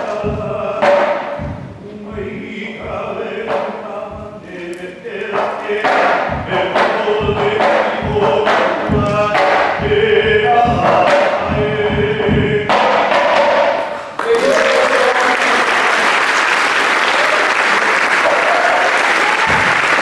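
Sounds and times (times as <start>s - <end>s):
low percussive thumps: 0.2s - 4.6s, 5.4s - 13.8s.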